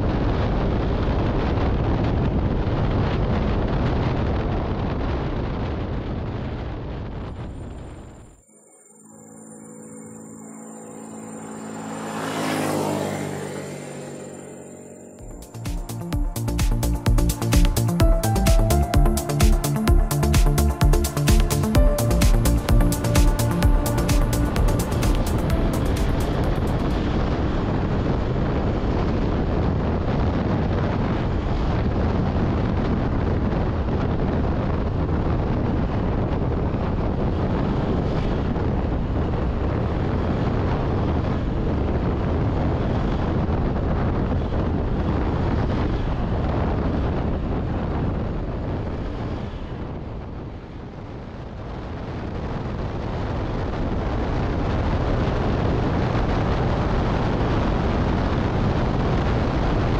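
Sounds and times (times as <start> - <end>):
wind buffeting microphone: 0.0 - 8.4, 24.7 - 59.9.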